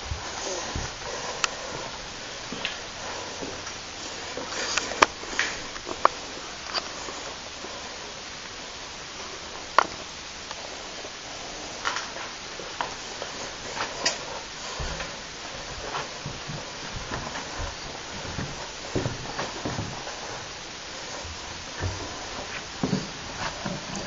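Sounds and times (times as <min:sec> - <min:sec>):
steady hiss: 0:00.0 - 0:24.0
low thuds: 0:14.4 - 0:24.0.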